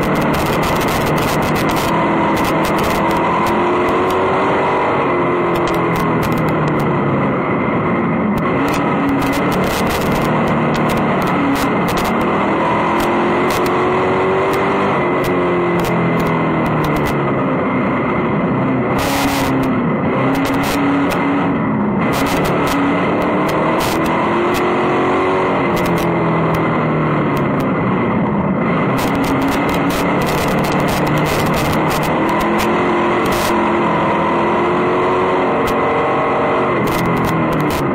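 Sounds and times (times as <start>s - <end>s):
sharp clicks and knocks: 0.0s - 4.3s, 5.5s - 6.9s, 8.4s - 13.8s, 14.4s - 17.2s, 19.0s - 21.2s, 22.0s - 24.7s, 25.7s - 26.7s, 27.3s - 27.7s, 29.0s - 33.6s, 36.8s - 37.9s
race car engine revving: 0.0s - 37.9s.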